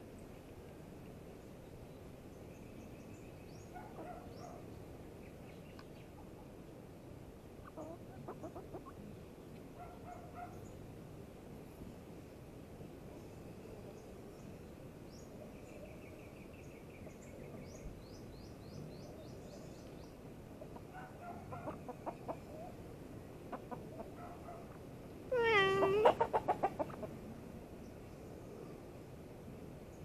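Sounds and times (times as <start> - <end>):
chickens clucking: 7.6 - 9.1, 20.6 - 22.8, 23.5 - 24.8, 25.5 - 27.2
chicken squawk: 20.8 - 22.4, 25.4 - 27.1.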